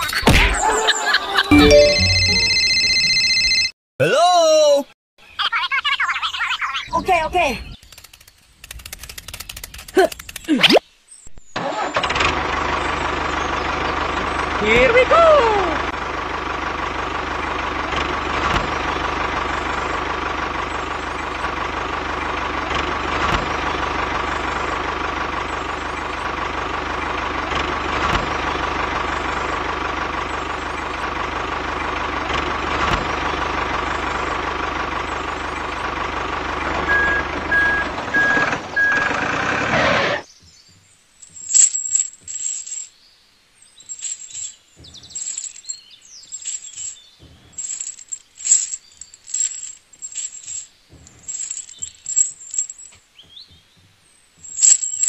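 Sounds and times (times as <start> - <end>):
tractor engine running: 11.6 - 42.9, 43.8 - 55.0
keyring chain clinking: 41.2 - 42.9, 43.8 - 53.0, 54.4 - 55.0.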